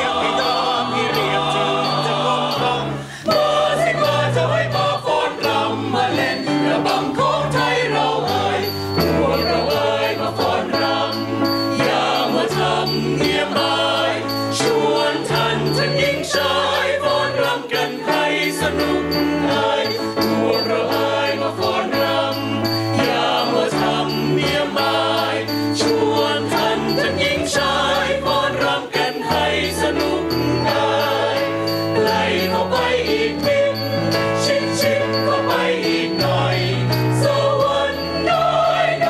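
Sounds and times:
mixed choir singing in harmony: 0.0s - 39.0s.

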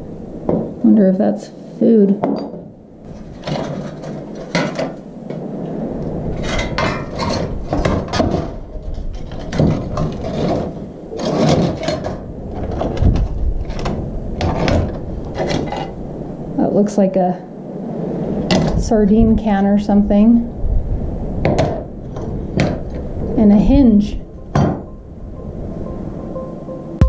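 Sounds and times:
low rumble: 17.4s - 27.0s.

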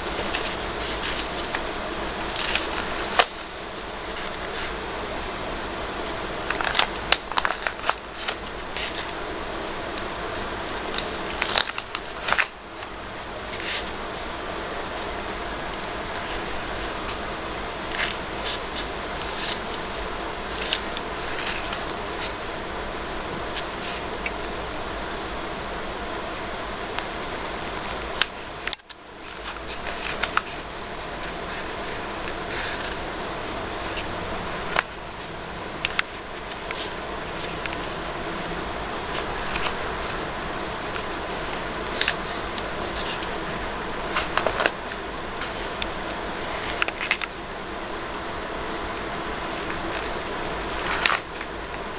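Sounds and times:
album pages turning: 0.0s - 4.8s, 6.4s - 9.2s, 10.8s - 14.0s, 15.7s - 17.2s, 17.9s - 22.5s, 27.8s - 38.0s, 38.9s - 47.4s, 49.5s - 51.8s
paper rustling: 0.0s - 4.8s, 6.4s - 9.2s, 10.8s - 14.2s, 15.7s - 22.5s, 23.4s - 24.6s, 27.8s - 38.0s, 39.0s - 47.4s, 49.5s - 51.8s
steady background hiss: 0.0s - 51.9s.

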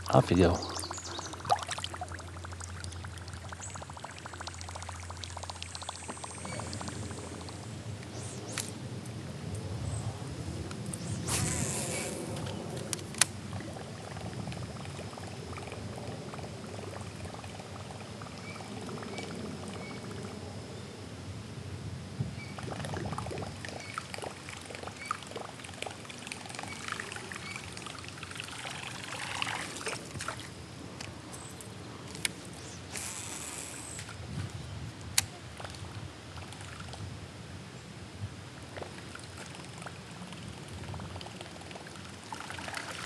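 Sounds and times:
water trickling and splashing: 0.0s - 8.7s, 10.9s - 20.4s, 22.4s - 37.2s, 38.6s - 43.0s.

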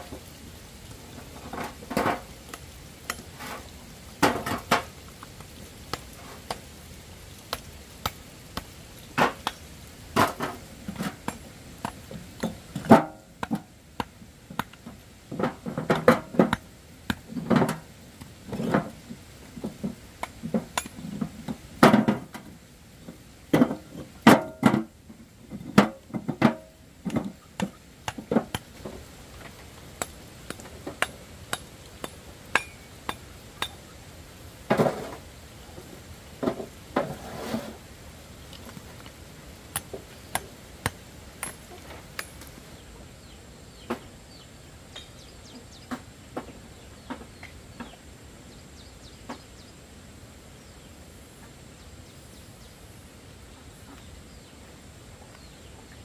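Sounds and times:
knocks and clinks of hard objects: 41.4s - 42.5s.

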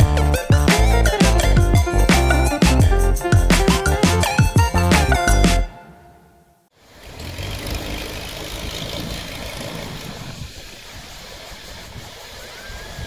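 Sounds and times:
small waves washing onto sand: 7.0s - 13.0s
wind rumbling on microphone: 7.4s - 13.0s.

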